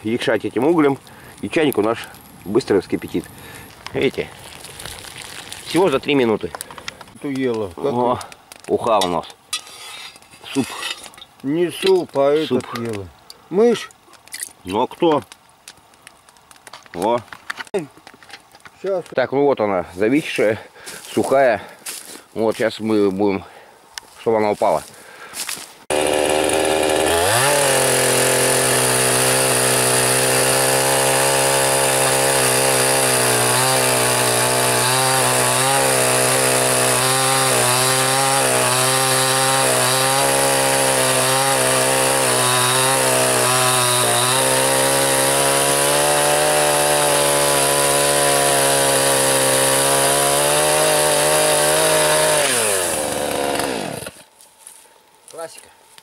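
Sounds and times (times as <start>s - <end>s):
chainsaw cutting wood: 25.9s - 54.4s.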